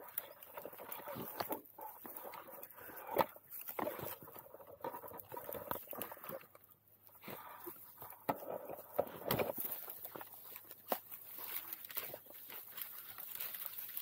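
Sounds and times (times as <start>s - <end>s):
sticks and leaves crackling: 0.0s - 14.0s
branch cracking: 9.3s - 14.0s.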